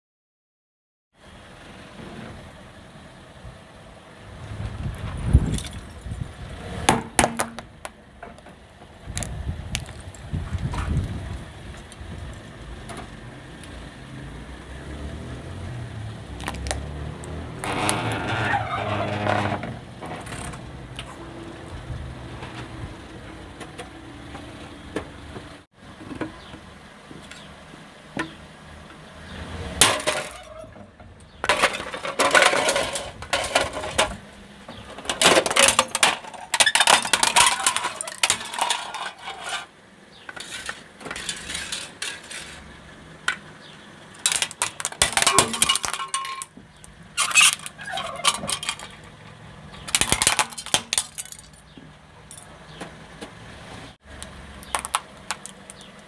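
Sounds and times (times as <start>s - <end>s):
tyre crushing plastic objects: 16.4s - 19.6s, 29.8s - 30.5s, 31.4s - 34.2s, 34.9s - 39.7s, 44.2s - 46.6s, 47.2s - 49.2s, 49.9s - 51.6s, 54.6s - 56.0s.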